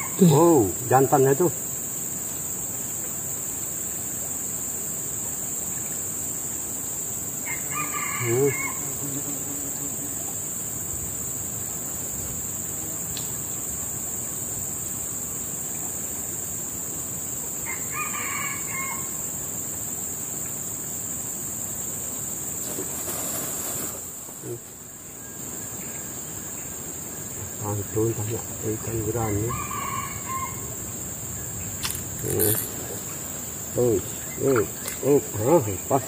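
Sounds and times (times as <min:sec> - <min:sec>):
rooster crowing: 0:07.4 - 0:09.0, 0:17.6 - 0:19.2, 0:29.2 - 0:30.8.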